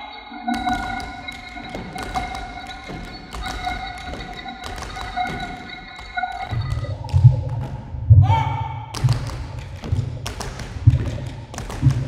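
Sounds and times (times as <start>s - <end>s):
scattered taps and knocks: 0.6s - 8.0s, 9.0s - 12.0s.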